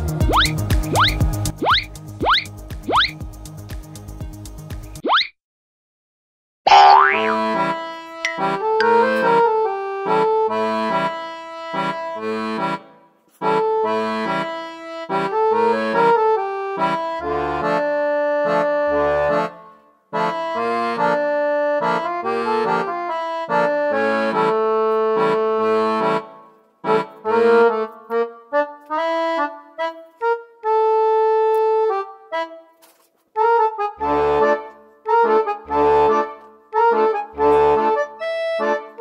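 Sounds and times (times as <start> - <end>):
instrumental background music: 0.0 - 5.1, 6.7 - 39.0.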